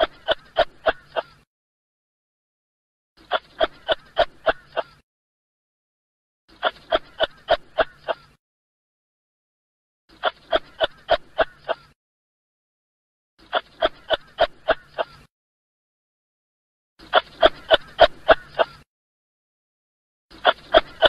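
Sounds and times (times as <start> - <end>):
kangaroo calling: 0.0 - 1.4, 3.2 - 5.0, 6.5 - 8.4, 10.1 - 12.0, 13.4 - 15.3, 17.0 - 18.8, 20.3 - 21.0.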